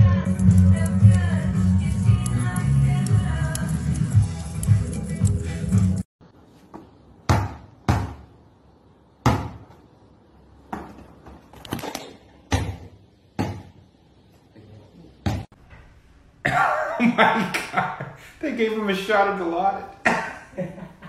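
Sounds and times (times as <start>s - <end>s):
music: 0.0s - 6.1s
basketball bouncing: 7.2s - 8.3s, 9.2s - 9.8s, 12.5s - 13.8s.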